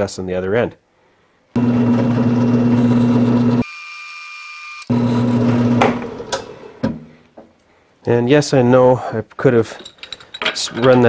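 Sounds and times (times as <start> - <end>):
drill motor humming: 1.6 - 3.7, 4.8 - 6.6.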